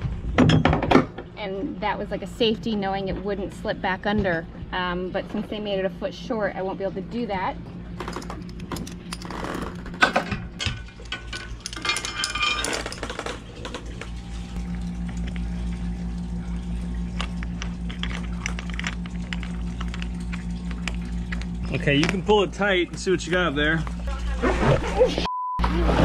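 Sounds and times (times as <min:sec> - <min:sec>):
steady low hum: 0:00.0 - 0:26.0
metal clinks of hook and shackles: 0:11.0 - 0:13.2.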